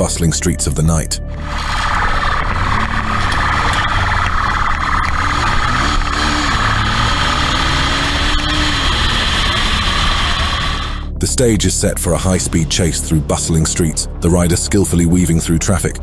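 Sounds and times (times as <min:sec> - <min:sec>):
motorcycle engine revving: 0:01.4 - 0:11.2.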